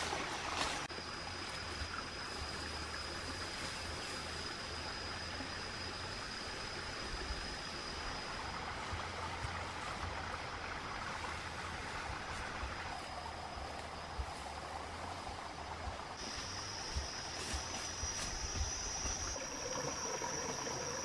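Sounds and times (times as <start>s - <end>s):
high-pitched insect drone: 0.8s - 9.0s, 12.4s - 21.0s
steady hiss: 0.8s - 21.0s.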